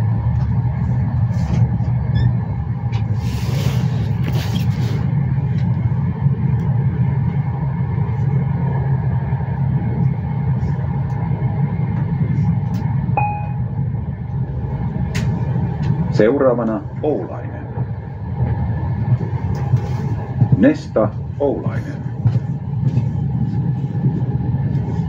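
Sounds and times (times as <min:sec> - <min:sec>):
train rumble from inside carriage: 0:00.0 - 0:25.0
short beep: 0:13.2 - 0:13.7.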